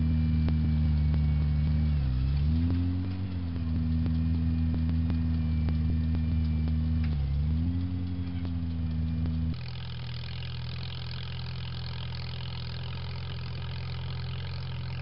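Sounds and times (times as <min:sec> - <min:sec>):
light regular ticking: 0:00.0 - 0:15.0
small tractor engine running: 0:00.0 - 0:15.0.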